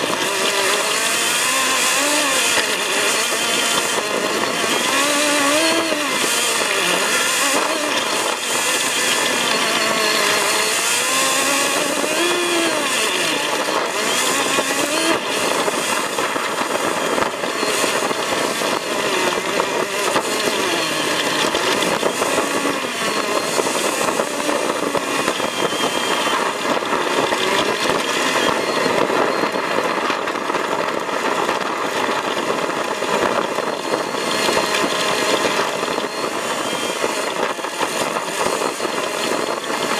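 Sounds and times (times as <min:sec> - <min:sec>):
vehicle engine revving: 0:00.0 - 0:30.2
road and tyre noise: 0:00.0 - 0:39.9.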